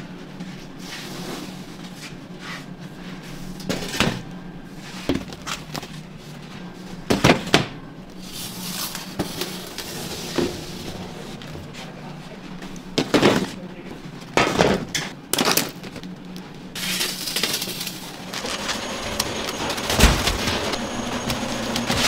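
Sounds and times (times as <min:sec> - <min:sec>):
steady low hum: 0:15.1 - 0:22.0.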